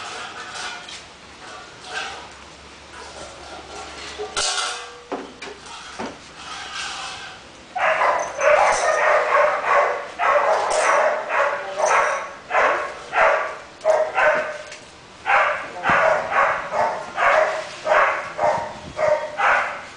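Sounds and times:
dogs barking: 7.8 - 19.9.

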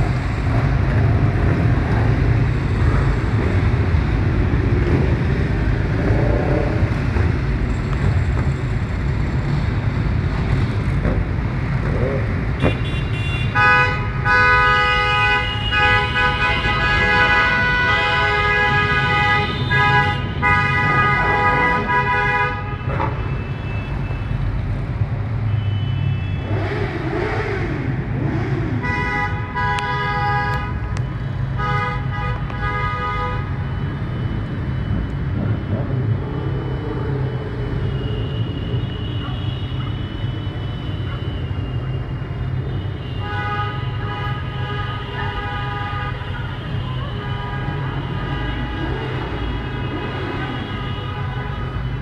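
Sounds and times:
car horns honking: 12.6 - 24.2, 28.2 - 33.9
low rumble of passing engines: 33.5 - 42.6.

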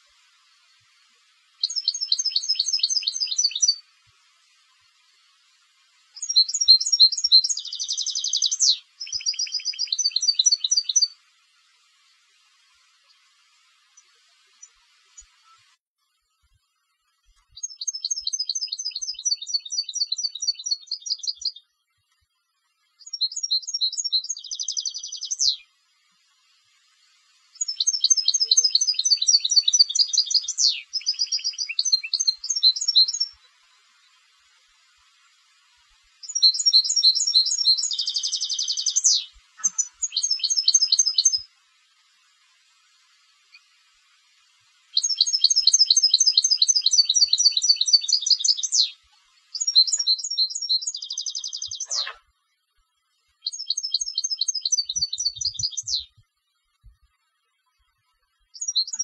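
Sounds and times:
goldfinch twittering and trilling: 1.6 - 5.0, 6.1 - 11.2, 17.5 - 21.7, 23.0 - 25.7, 27.5 - 35.4, 36.1 - 41.6, 44.9 - 52.2, 53.4 - 56.2, 58.5 - 59.0.

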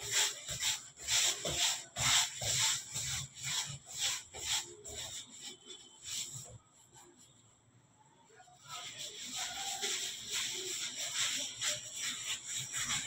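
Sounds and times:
hands rubbing dough on metal: 0.0 - 7.6, 8.3 - 13.0.

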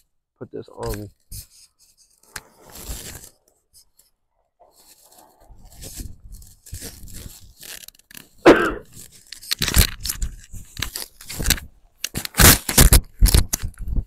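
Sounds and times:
fabric rustling: 1.2 - 11.7.

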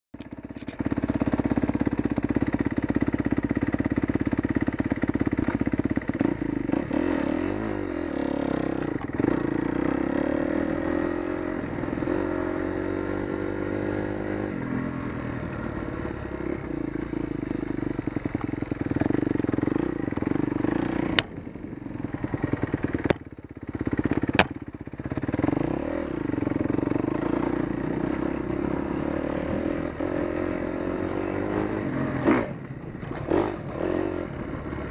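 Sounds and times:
motorcycle engine revving: 0.2 - 34.9
sharp knocks: 24.2 - 24.6.

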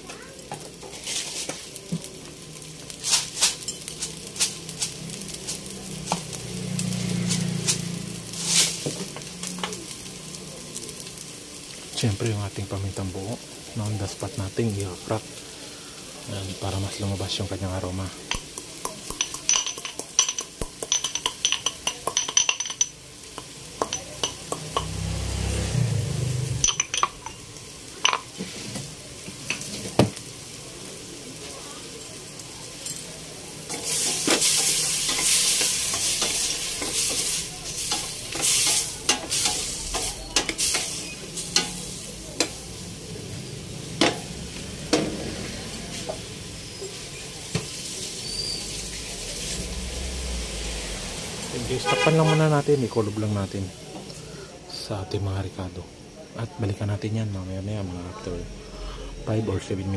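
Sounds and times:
food sizzling in oil: 0.0 - 59.9
pestle cracking peppercorns in mortar: 3.0 - 9.8, 18.2 - 25.1
spoon stirring and scraping pot: 33.7 - 41.7.

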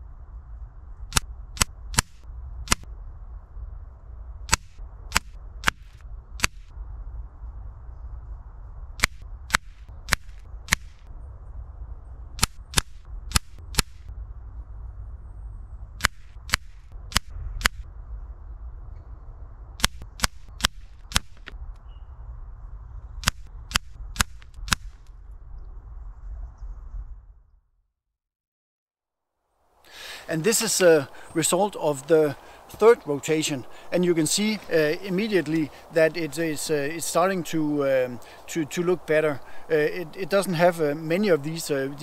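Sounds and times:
steady low rumble: 0.0 - 27.7, 29.8 - 42.0
air rifle shots: 1.1 - 2.9, 4.5 - 6.7, 9.0 - 11.0, 12.4 - 14.1, 16.0 - 17.8, 19.8 - 21.6, 23.2 - 25.0.

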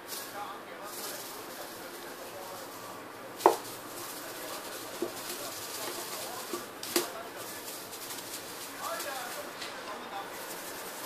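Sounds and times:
knocks on cardboard box: 3.4 - 3.6.

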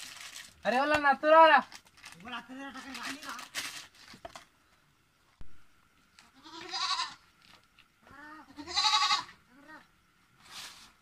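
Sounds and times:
farm animal bleating: 6.2 - 7.2, 8.1 - 9.9.

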